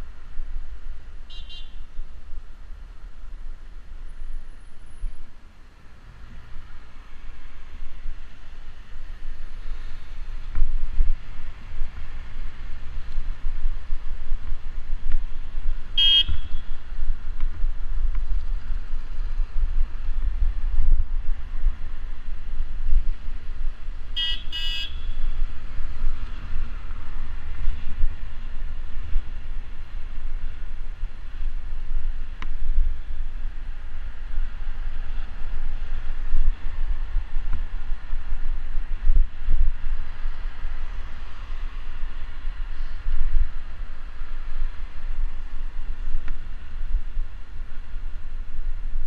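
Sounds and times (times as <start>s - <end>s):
cars in traffic: 0.0s - 49.0s
vehicle horn toots: 1.3s - 1.9s, 16.0s - 16.7s, 24.2s - 25.2s
wind buffeting microphone: 5.9s - 24.3s, 25.0s - 49.0s.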